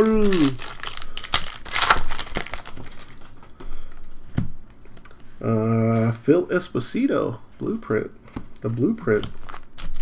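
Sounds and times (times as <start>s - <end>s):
cards and plastic packaging crinkling: 0.0s - 4.0s, 9.0s - 10.0s.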